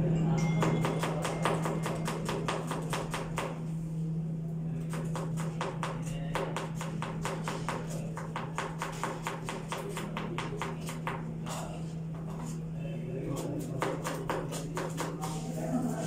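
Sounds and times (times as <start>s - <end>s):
steady low hum: 0.0s - 16.0s
knife chopping on cutting board: 0.7s - 3.6s, 4.9s - 11.6s, 13.4s - 15.4s.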